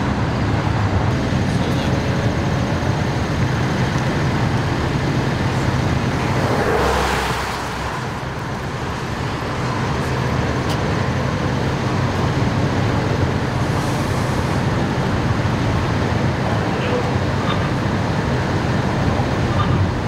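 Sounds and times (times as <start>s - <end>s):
vehicle engines humming with road noise: 0.0s - 20.0s
vehicle passing with tyre noise: 2.7s - 16.4s.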